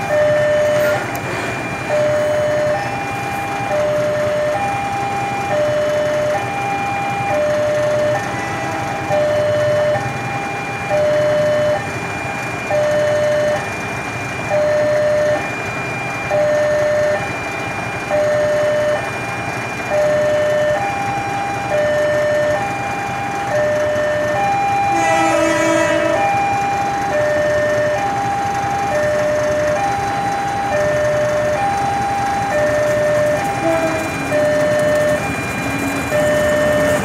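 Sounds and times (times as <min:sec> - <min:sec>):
level crossing alarm tones: 0:00.0 - 0:37.0
train horn: 0:24.8 - 0:26.6, 0:33.3 - 0:35.0.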